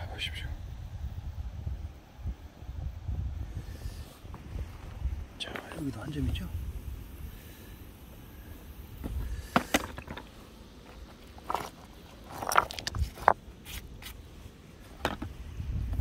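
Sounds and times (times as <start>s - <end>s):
stones clicking and scraping: 9.0s - 14.2s, 14.9s - 15.4s.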